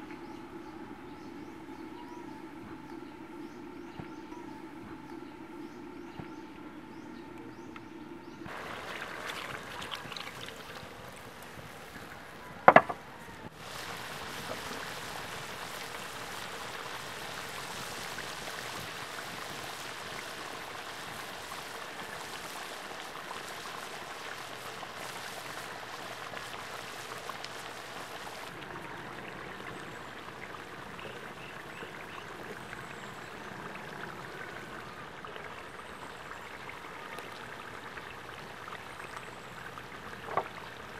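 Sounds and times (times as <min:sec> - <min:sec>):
sauce bubbling at a boil: 0:08.4 - 0:12.9, 0:13.5 - 0:40.9.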